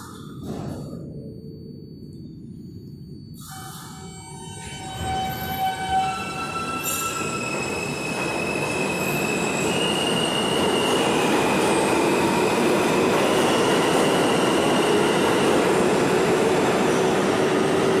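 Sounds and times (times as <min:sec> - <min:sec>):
subway train rumble: 0:00.0 - 0:18.0
metallic wheel squeal: 0:03.3 - 0:11.9.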